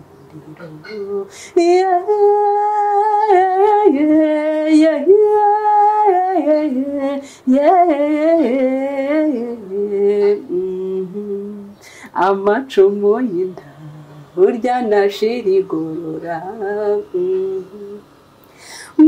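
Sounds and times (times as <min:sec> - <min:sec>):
woman singing long notes: 0:00.3 - 0:18.1.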